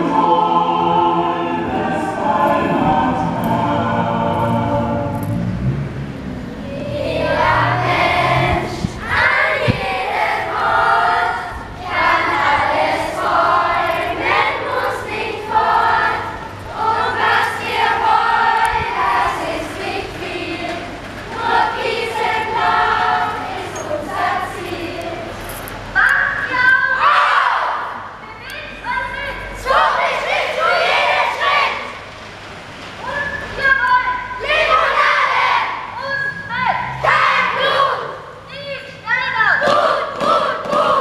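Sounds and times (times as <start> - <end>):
children singing in chorus: 0.0 - 5.4, 6.7 - 25.4, 29.6 - 32.0, 39.6 - 41.0.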